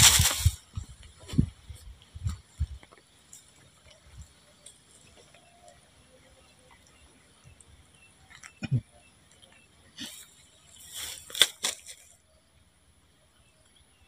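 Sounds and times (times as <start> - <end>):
rustling close to microphone: 0.0 - 5.4
high insect drone: 0.0 - 14.0.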